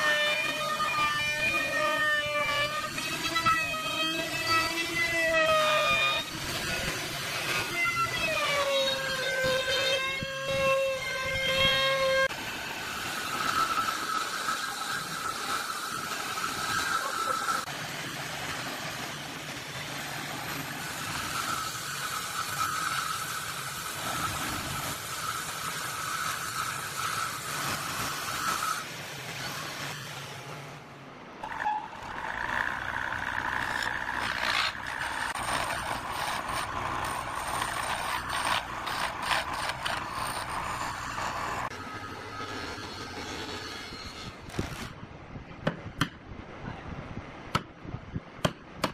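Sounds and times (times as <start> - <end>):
chisel scraping turning wood: 31.4 - 41.8
wood lathe whining: 31.4 - 42.7
electric drill boring into wood: 32.0 - 42.7.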